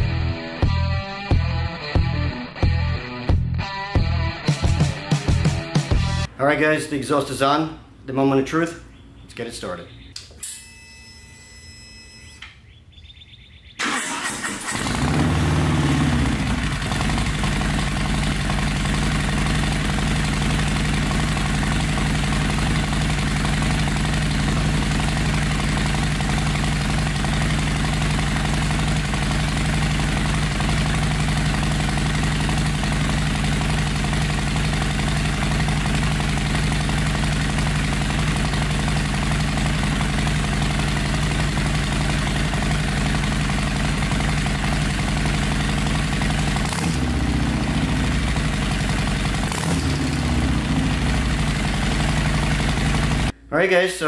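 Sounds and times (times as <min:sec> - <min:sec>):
motorcycle starter cranking: 0:13.8 - 0:47.2
motorcycle engine idling: 0:14.7 - 0:53.4.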